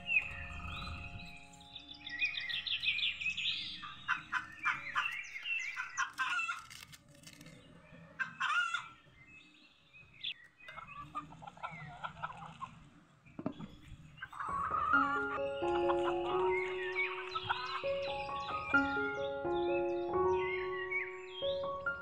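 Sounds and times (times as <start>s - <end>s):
chickens clucking: 3.8s - 6.6s, 10.6s - 22.0s.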